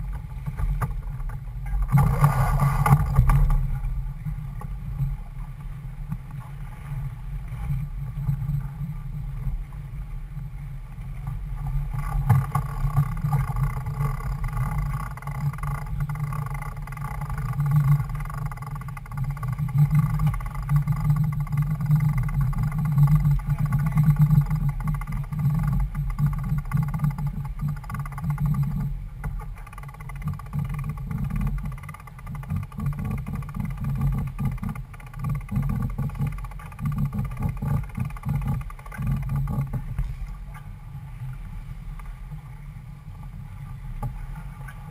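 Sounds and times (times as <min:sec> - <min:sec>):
water rushing along hull: 0:00.0 - 0:44.9.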